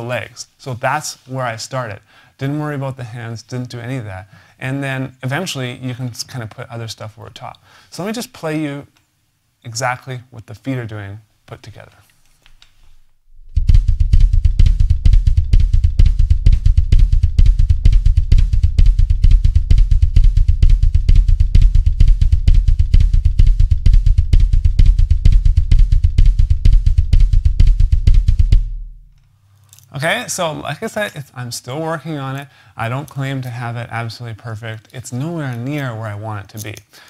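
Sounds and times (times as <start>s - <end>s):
bass drum kicks: 13.3s - 29.2s.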